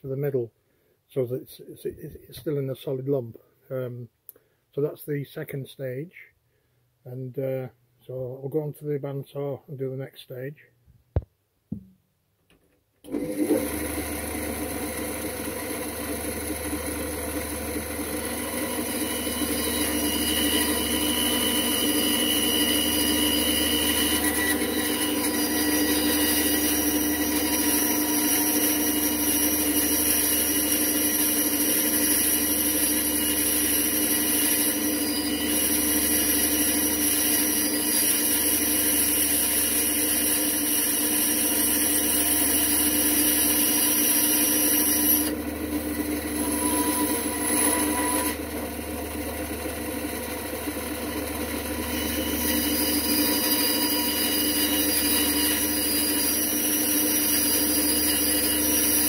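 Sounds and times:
bandsaw cutting metal: 13.1s - 59.0s.

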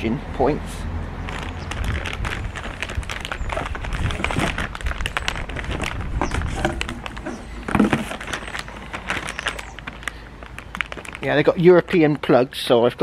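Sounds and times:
plastic bag crinkling: 1.2s - 12.3s
wind rumble on microphone: 1.3s - 7.4s.

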